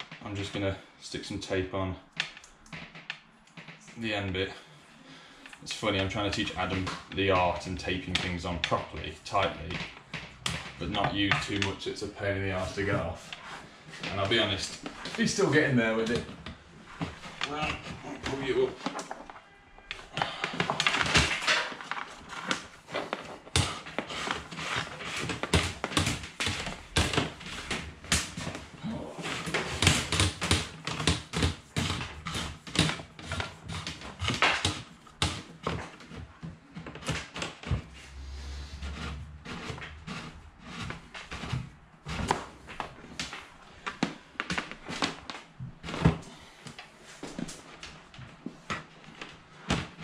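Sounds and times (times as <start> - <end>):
cable clicking and scraping: 16.0 - 46.0.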